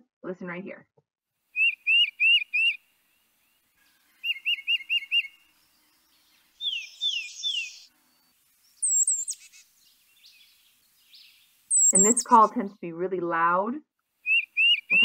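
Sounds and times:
titmouse singing whistled song: 0:01.6 - 0:02.8, 0:04.2 - 0:07.9, 0:08.6 - 0:12.5, 0:14.2 - 0:15.0.

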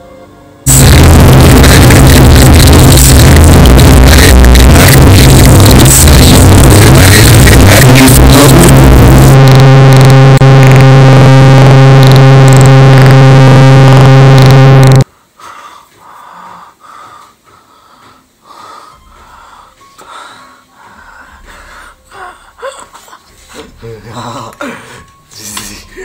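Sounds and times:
distorted droning tone: 0:00.7 - 0:15.1
man breathing raspily: 0:15.1 - 0:22.7.

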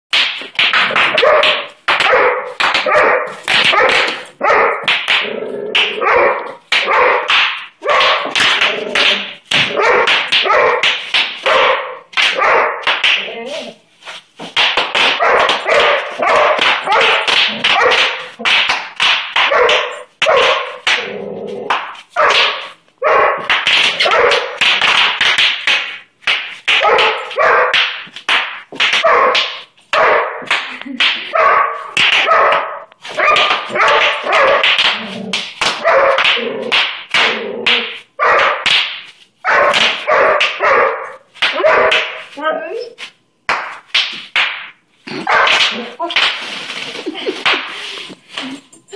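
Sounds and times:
dog barking: 0:01.1 - 0:04.9, 0:06.0 - 0:08.3, 0:09.7 - 0:12.8, 0:15.1 - 0:18.4, 0:19.4 - 0:20.8, 0:22.2 - 0:24.6, 0:26.8 - 0:27.8, 0:29.0 - 0:30.5, 0:31.3 - 0:34.7, 0:35.8 - 0:36.2, 0:38.2 - 0:38.6, 0:39.4 - 0:42.2, 0:45.3 - 0:45.8
bubble wrap popping: 0:43.0 - 0:48.4.

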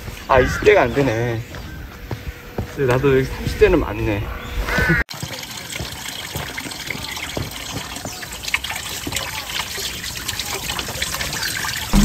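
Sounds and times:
water trickling into stone basin: 0:05.1 - 0:12.0.

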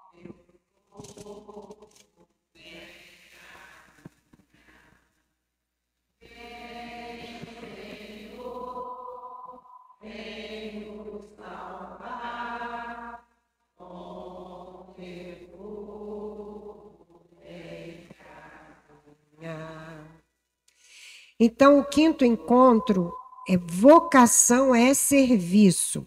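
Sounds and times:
congregation singing a hymn: 0:01.0 - 0:03.8, 0:06.2 - 0:13.2, 0:13.8 - 0:20.2, 0:21.8 - 0:24.6.

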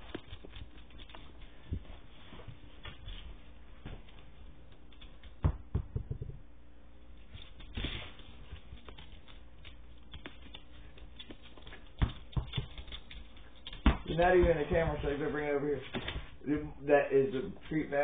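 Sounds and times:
puppy paws tapping on hardwood: 0:00.0 - 0:06.4, 0:08.4 - 0:15.0.

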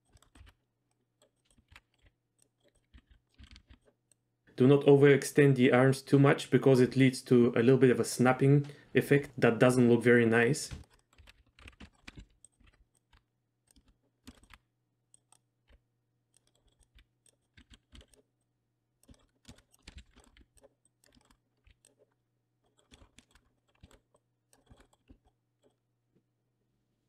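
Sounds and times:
keyboard and mouse clicking: 0:00.0 - 0:04.2, 0:10.7 - 0:18.3, 0:19.0 - 0:25.8.

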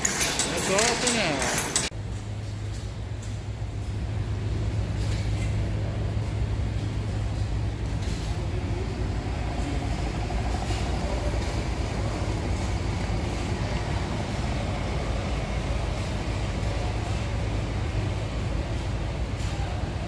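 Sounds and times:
low mechanical rumble: 0:01.9 - 0:20.0.

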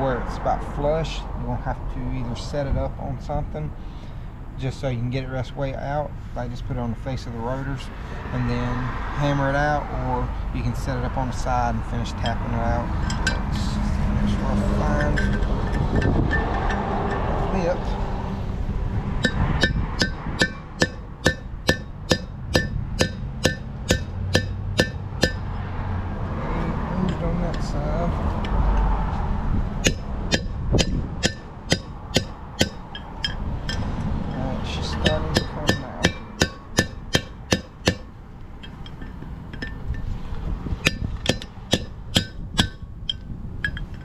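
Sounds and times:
hammer striking steel punch: 0:19.2 - 0:25.4, 0:29.8 - 0:33.8, 0:34.9 - 0:39.8, 0:40.8 - 0:43.8.

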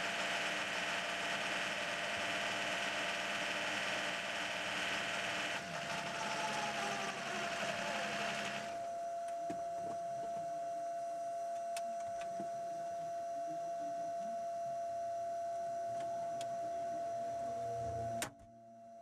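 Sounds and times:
race car engine with whine: 0:00.0 - 0:09.6, 0:15.9 - 0:18.6
steady high whine: 0:00.0 - 0:19.0.

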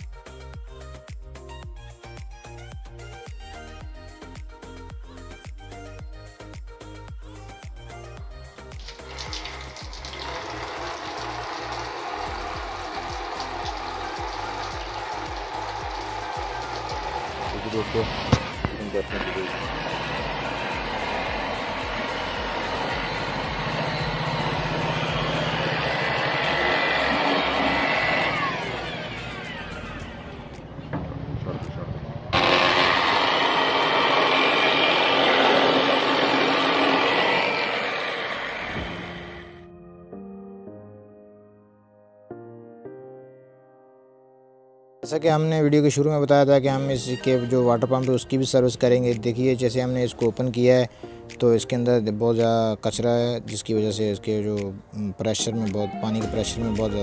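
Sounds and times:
music with a steady beat: 0:00.0 - 0:10.1, 0:12.6 - 0:17.5
water spraying and splashing: 0:08.8 - 0:29.9
electric air blower rushing: 0:08.8 - 0:30.7, 0:32.3 - 0:39.6
blower motor whine: 0:09.0 - 0:31.4, 0:32.2 - 0:39.6.

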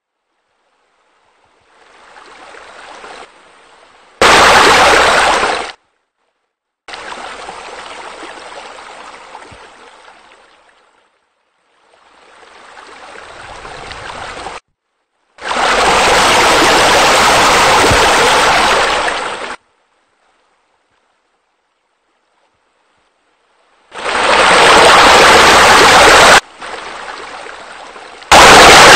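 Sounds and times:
water feature splashing: 0:04.2 - 0:05.8, 0:15.4 - 0:19.6, 0:23.9 - 0:28.9
waterfall spilling into pool: 0:04.2 - 0:05.8, 0:15.4 - 0:19.6, 0:23.9 - 0:28.9.

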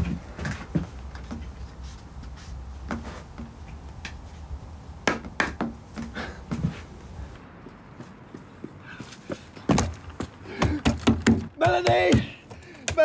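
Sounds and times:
sharp knocks: 0:05.0 - 0:06.2, 0:10.6 - 0:13.0.

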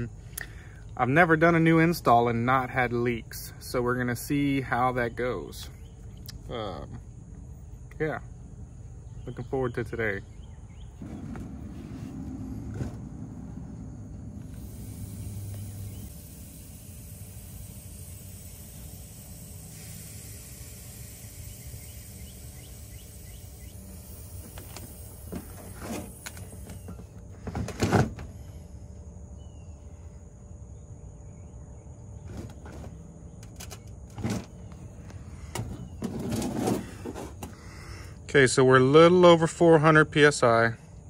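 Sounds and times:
gas hissing through hoses: 0:13.4 - 0:27.2.

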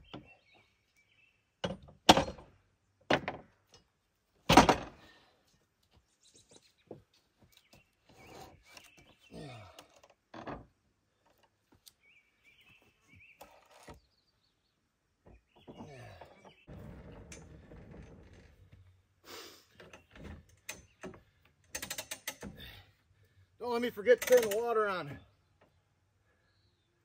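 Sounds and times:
birds chirping faintly: 0:00.0 - 0:01.6, 0:05.3 - 0:21.8, 0:22.4 - 0:27.0
heavy wooden thunks of log: 0:04.5 - 0:05.0, 0:15.2 - 0:17.8.

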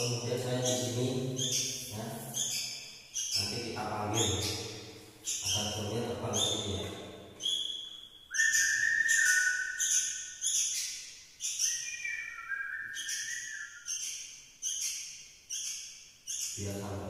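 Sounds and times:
fledgling bird begging calls: 0:07.4 - 0:16.6.

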